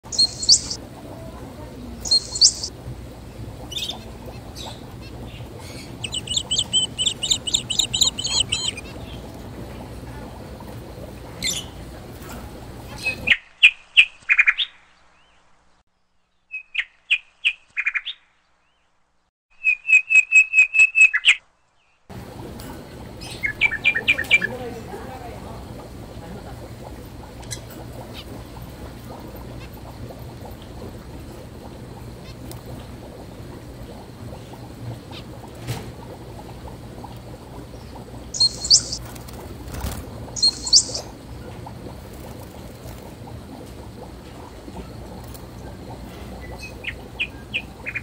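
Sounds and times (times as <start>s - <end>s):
steady background noise: 0.0s - 15.8s
budgerigars chirping: 0.1s - 0.8s, 2.1s - 2.7s, 5.6s - 8.9s, 38.4s - 39.0s, 40.4s - 41.1s
zebra finches calling: 0.2s - 0.8s, 2.1s - 2.7s, 5.6s - 9.0s, 38.4s - 39.0s, 40.4s - 41.0s.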